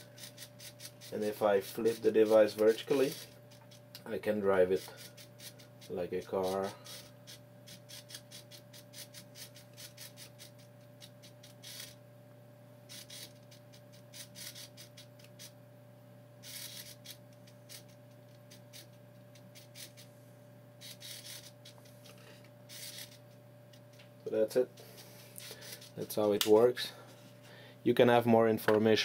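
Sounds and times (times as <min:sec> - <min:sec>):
faint steady hum: 0:00.0 - 0:29.0
servo motor gear noise: 0:16.4 - 0:20.1, 0:20.8 - 0:23.2.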